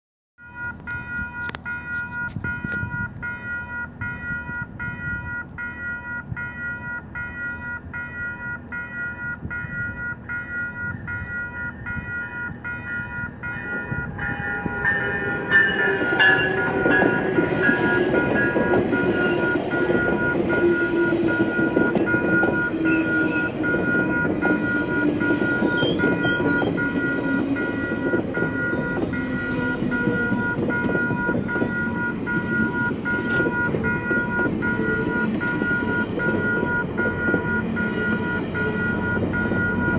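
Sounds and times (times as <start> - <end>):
crossing warning bell ringing: 0.4 - 39.9
train wheels clattering on rails: 11.9 - 39.9.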